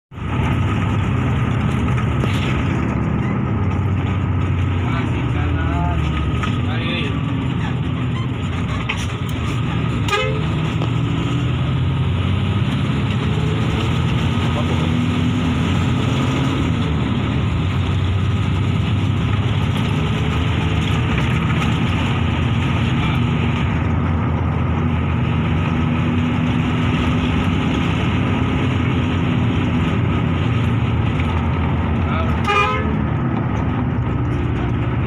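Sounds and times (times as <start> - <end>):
bus engine humming: 0.1 - 35.0
road noise: 0.1 - 35.0.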